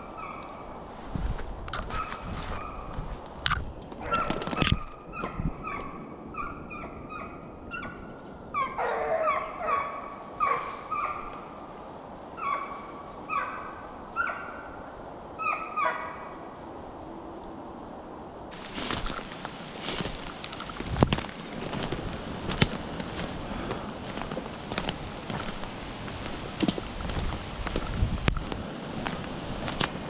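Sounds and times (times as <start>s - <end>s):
hounds barking: 4.0s - 4.4s, 8.6s - 11.4s, 12.4s - 14.8s, 15.4s - 16.2s.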